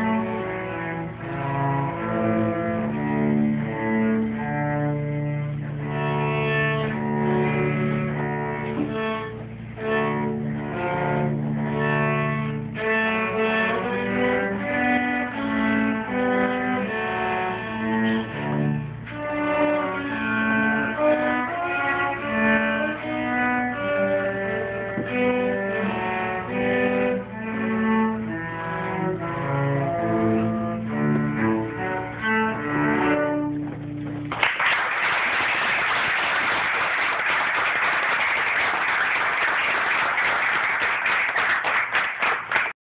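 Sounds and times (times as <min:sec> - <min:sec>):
cello duet: 0:00.0 - 0:34.4
audience applauding: 0:34.3 - 0:42.8.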